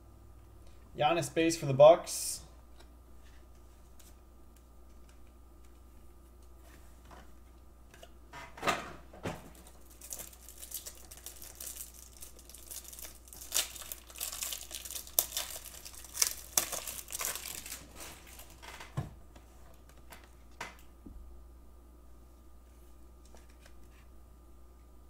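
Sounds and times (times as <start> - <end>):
plastic wrapper crinkling: 9.5 - 18.9.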